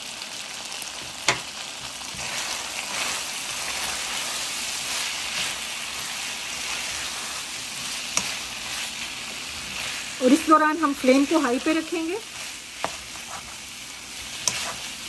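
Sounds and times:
chicken and onion sizzling in oil: 0.0s - 15.0s
plastic spatula stirring: 11.9s - 15.0s.

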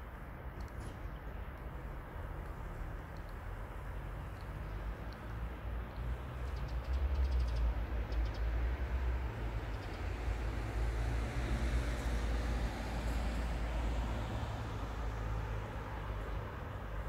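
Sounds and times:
faint ticks: 2.3s - 3.5s, 4.2s - 5.5s.

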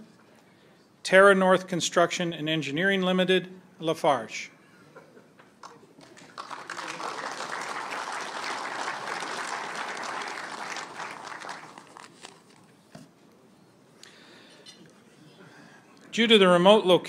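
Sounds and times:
audience applauding: 5.6s - 12.4s.

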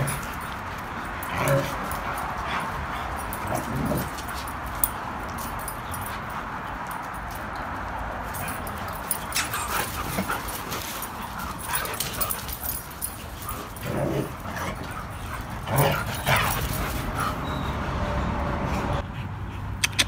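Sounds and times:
dogs whining and yipping: 8.3s - 19.0s.

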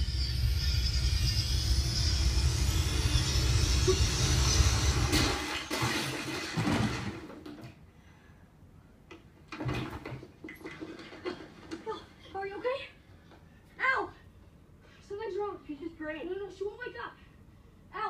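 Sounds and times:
loud deep rumble: 0.0s - 5.6s.

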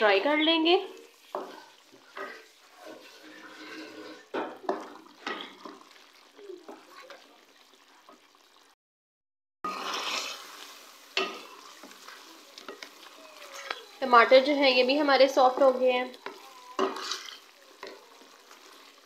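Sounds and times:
sauce bubbling and sizzling: 0.0s - 8.8s, 9.6s - 19.0s
wooden spatula scraping metal pot: 0.1s - 5.9s, 9.7s - 19.0s.

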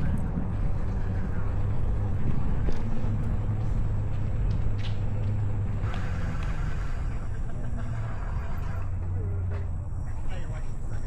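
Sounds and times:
wind rumble on microphone: 0.0s - 8.8s
rolling road noise: 0.0s - 11.0s.

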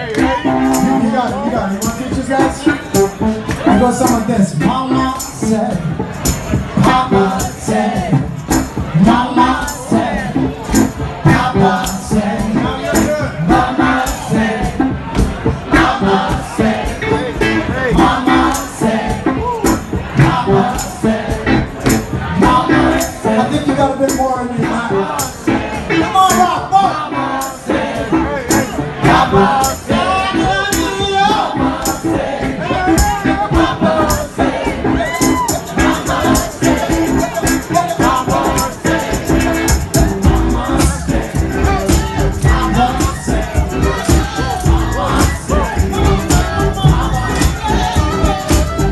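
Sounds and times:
man singing into microphone: 0.0s - 6.0s, 6.8s - 8.3s, 9.0s - 10.5s, 11.2s - 14.8s, 22.3s - 25.4s, 26.0s - 31.8s, 32.5s - 48.9s
blues rock band playing: 0.0s - 48.9s
steady drum beat: 0.0s - 48.9s
amplified harmonica: 0.2s - 1.4s.

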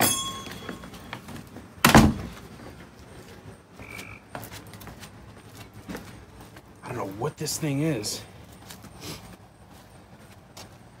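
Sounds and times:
metallic clink of door hardware: 0.0s - 1.0s
door closing thunk: 1.8s - 2.3s.

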